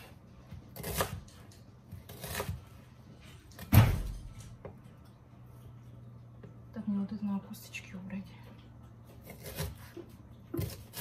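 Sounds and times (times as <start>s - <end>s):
knife cutting onion on board: 0.0s - 2.9s, 9.1s - 11.0s.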